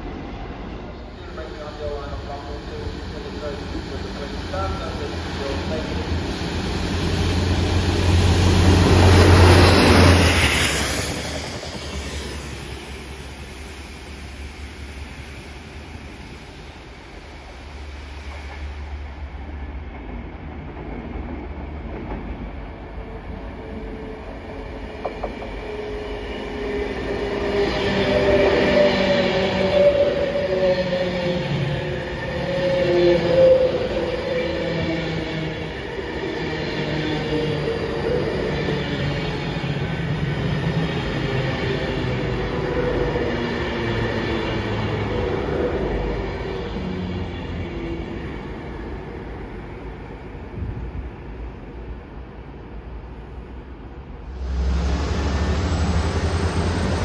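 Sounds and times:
train wheels rumbling past: 1.1s - 23.2s, 54.2s - 57.0s.

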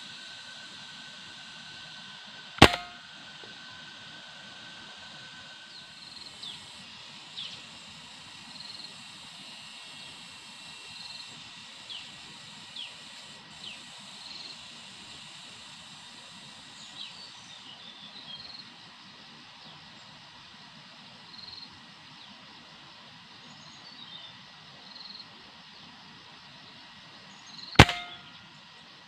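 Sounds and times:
gunshot: 2.6s - 3.0s, 27.8s - 28.2s.

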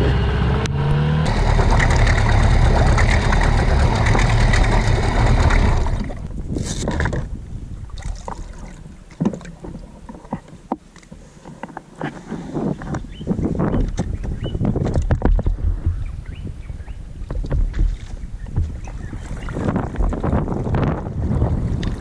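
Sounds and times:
outboard motor running: 0.0s - 6.3s.

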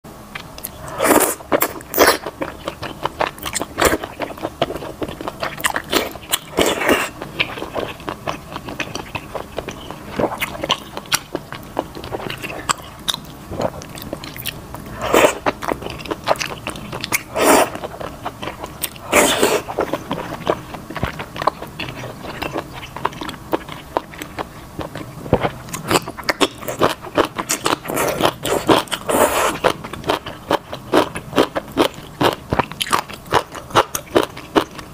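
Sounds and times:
person slurping noodles: 0.8s - 2.3s, 14.9s - 15.6s, 17.2s - 18.0s, 19.0s - 19.9s, 27.8s - 29.7s
wet chewing and smacks: 1.5s - 34.9s.

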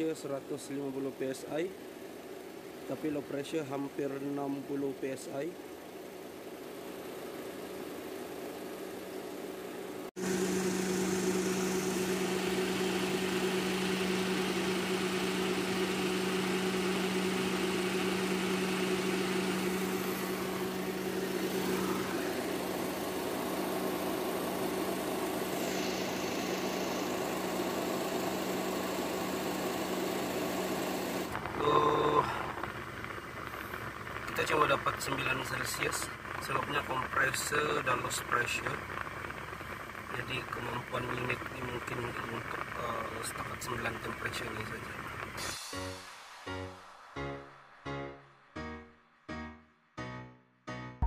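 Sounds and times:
car engine idling: 0.0s - 45.4s.

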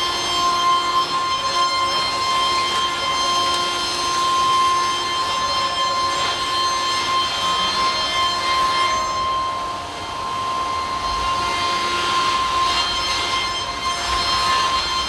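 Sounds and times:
milling spindle whining: 0.0s - 15.0s.

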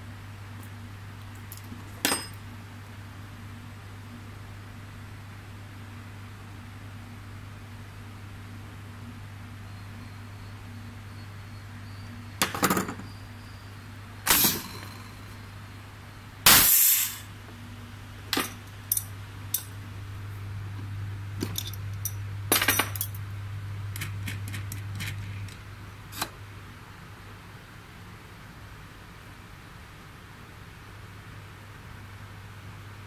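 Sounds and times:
machine low hum: 0.0s - 33.0s
pneumatic hissing bursts: 14.3s - 14.7s, 16.5s - 17.3s
metal clicks and clinks: 18.3s - 19.7s, 21.4s - 23.2s.

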